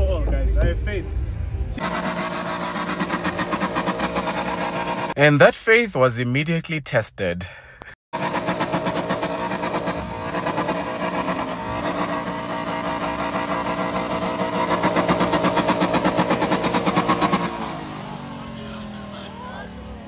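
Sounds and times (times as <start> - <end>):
car engine revving high: 1.8 - 5.2, 8.2 - 20.0.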